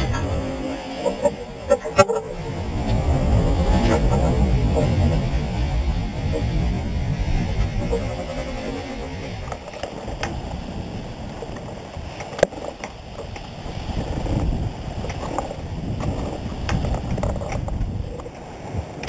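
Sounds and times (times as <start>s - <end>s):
water washing along hull: 0.0s - 19.0s
wind buffeting camera: 0.0s - 19.0s
sharp clicks and knocks: 7.4s - 10.6s, 11.3s - 19.0s.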